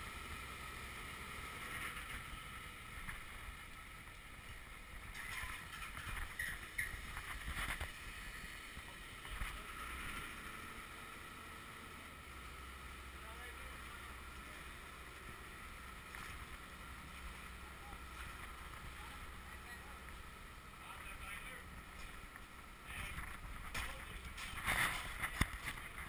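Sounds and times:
diesel engine rumble: 0.0s - 26.0s
wind noise on microphone: 5.1s - 8.0s.

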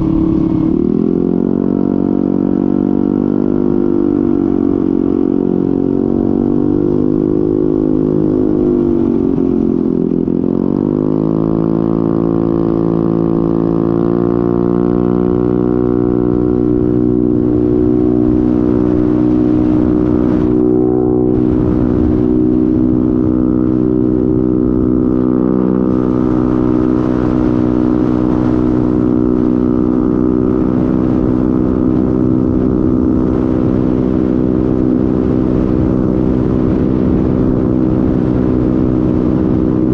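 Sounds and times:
wind rushing over camera: 0.0s - 3.0s, 14.8s - 39.9s
scooter engine accelerating: 0.0s - 39.9s.

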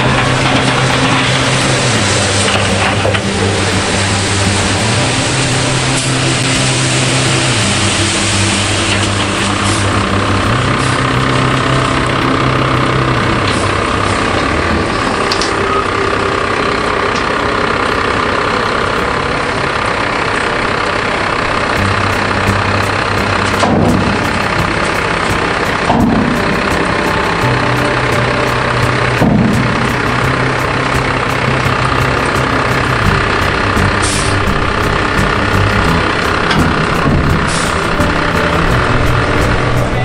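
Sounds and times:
diesel truck engine running: 0.0s - 40.0s
asphalt tipping out of truck bed: 21.8s - 26.9s, 28.6s - 40.0s.

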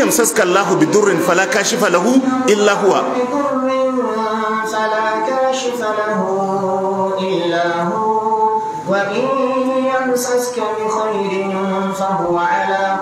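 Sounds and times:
man chanting melodic recitation: 0.0s - 8.3s.

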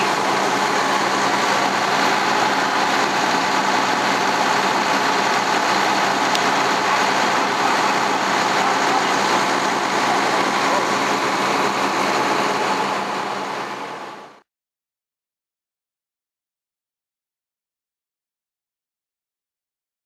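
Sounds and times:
engine droning steadily: 0.0s - 14.4s.

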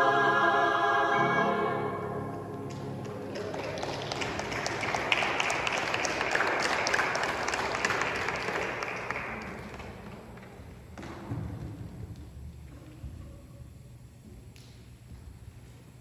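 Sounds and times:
crowd applauding: 2.6s - 10.9s.

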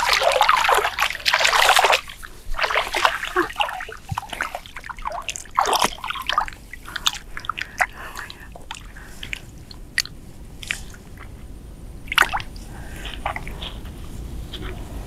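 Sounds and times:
water dripping: 0.0s - 14.8s
water splashing and sloshing: 0.0s - 15.0s.

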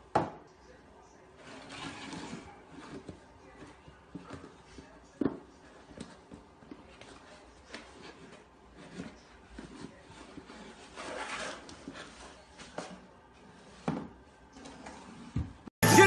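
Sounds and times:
paper tube scraping on floor: 1.4s - 3.2s, 7.0s - 15.4s.

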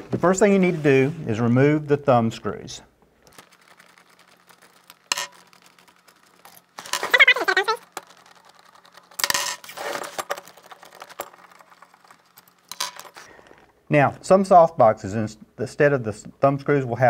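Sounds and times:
metal screws clicking and clinking: 3.3s - 13.3s.

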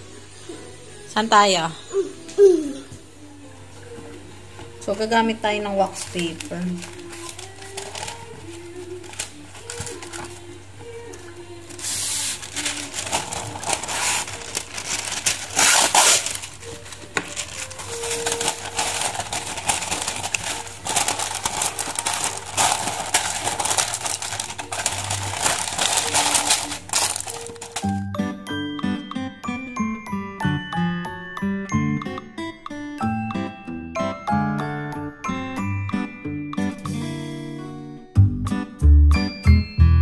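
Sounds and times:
background music: 0.0s - 40.0s
wax paper crinkling: 5.7s - 28.0s.

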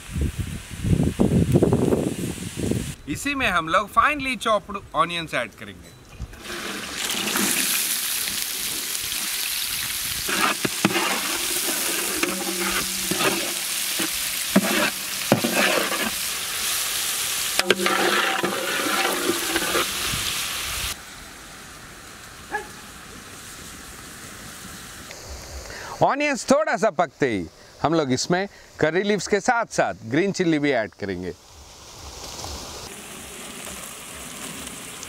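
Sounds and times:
onions sizzling in hot oil: 6.4s - 22.4s, 31.4s - 35.0s
stirring clicks and scrapes: 10.2s - 16.3s, 17.6s - 20.2s.

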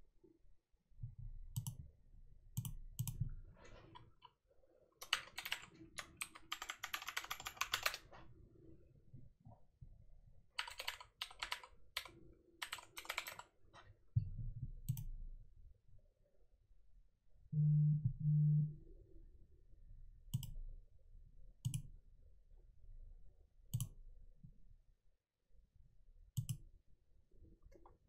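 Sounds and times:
typing on computer keyboard: 5.0s - 8.1s, 10.6s - 13.5s.

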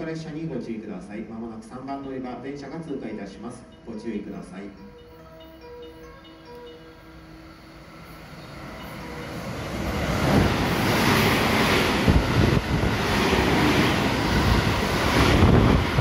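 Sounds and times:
train wheels rushing on rail: 8.3s - 16.0s
wind buffeting microphone: 9.9s - 16.0s.

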